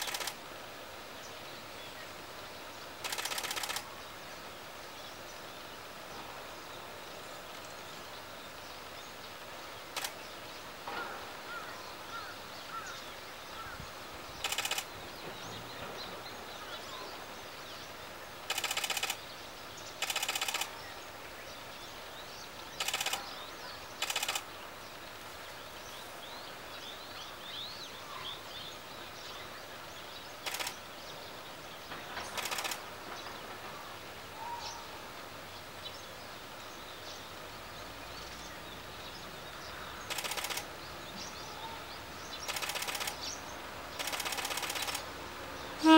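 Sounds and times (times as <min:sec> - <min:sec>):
birds chirping: 0:00.0 - 0:45.9
loud rattling bursts: 0:03.0 - 0:03.8, 0:14.4 - 0:14.9, 0:18.5 - 0:19.2, 0:20.0 - 0:20.7, 0:22.8 - 0:23.2, 0:24.0 - 0:24.4, 0:32.1 - 0:33.7, 0:40.1 - 0:40.7, 0:42.5 - 0:43.2, 0:44.0 - 0:45.1.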